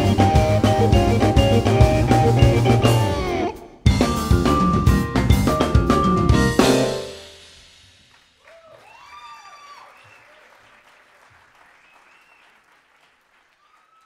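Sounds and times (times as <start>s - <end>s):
rock band closing chord: 0.0s - 8.1s
cheering shouts: 8.4s - 10.5s, 13.6s - 14.0s
audience applause: 8.4s - 14.0s.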